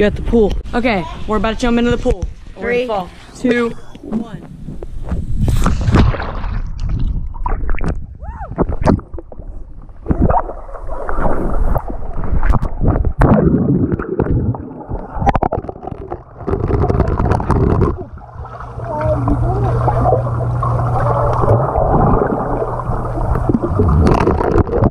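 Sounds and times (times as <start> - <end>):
water bubbling: 4.6 - 24.9
pool water splashing and gurgling: 5.1 - 24.9.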